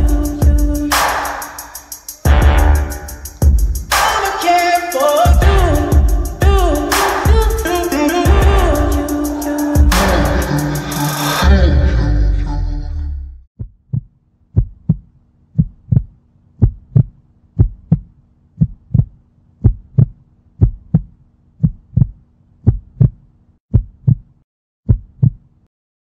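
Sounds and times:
heartbeat thumps: 0:02.3 - 0:03.9, 0:05.3 - 0:07.7, 0:08.3 - 0:09.0, 0:13.6 - 0:24.2, 0:24.9 - 0:25.4.

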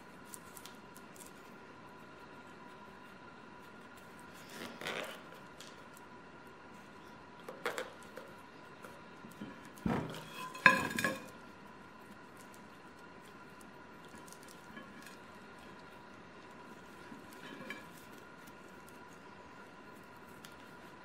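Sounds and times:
plate clattering and ringing: 0:10.3 - 0:11.3.

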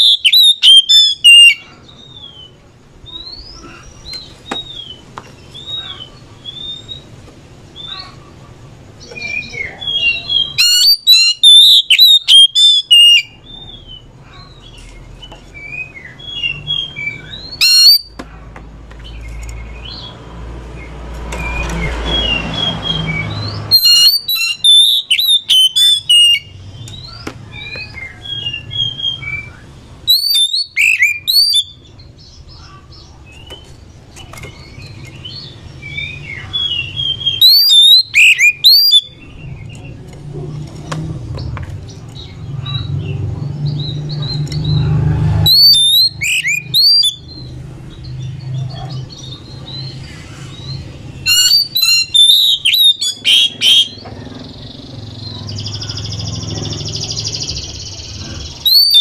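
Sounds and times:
bird singing whistled notes: 0:00.0 - 0:07.1, 0:09.0 - 0:18.2, 0:21.4 - 0:32.3, 0:34.5 - 0:39.9, 0:45.4 - 0:48.4, 0:50.6 - 0:54.0, 0:58.5 - 0:59.0.

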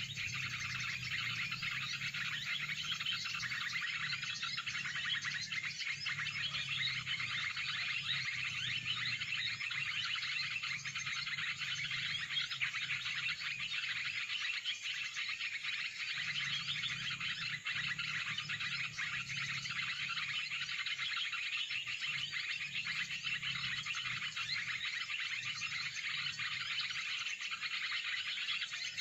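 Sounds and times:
many birds chirping: 0:00.0 - 0:29.0.

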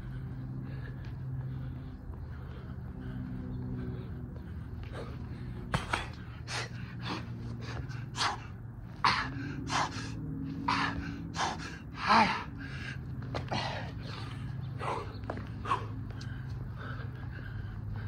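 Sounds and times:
low hum: 0:00.0 - 0:18.0
man gasping breaths: 0:00.0 - 0:18.0
man grunting: 0:12.0 - 0:12.6.

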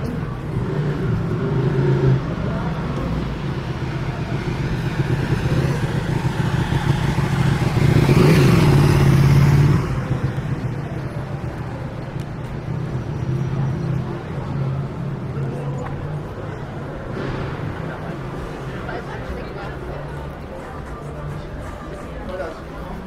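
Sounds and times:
vehicle passing close: 0:00.0 - 0:11.8
vehicle engine running: 0:00.0 - 0:23.0.

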